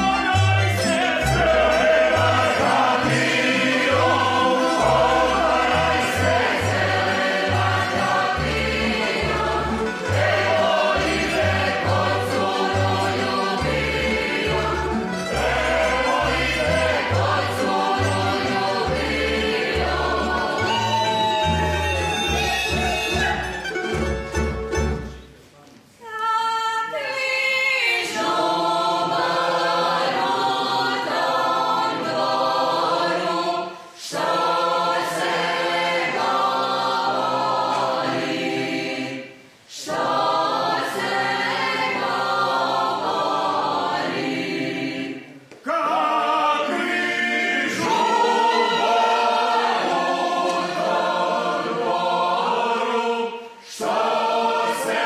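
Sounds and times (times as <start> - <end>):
folk group singing unaccompanied: 0.0 - 25.1, 26.1 - 55.0.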